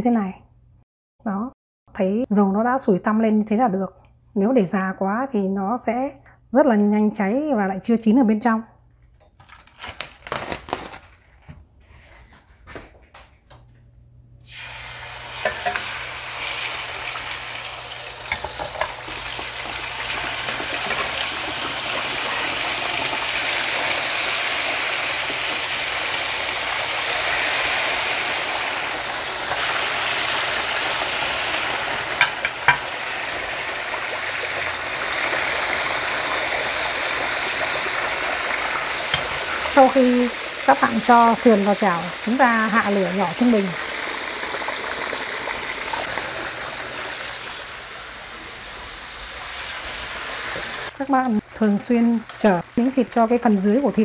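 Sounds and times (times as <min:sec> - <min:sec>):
meat sizzling in hot oil: 0:14.4 - 0:54.0.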